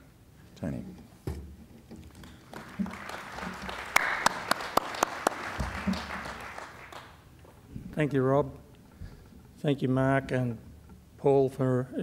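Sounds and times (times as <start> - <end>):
audience applauding: 2.1 - 7.3.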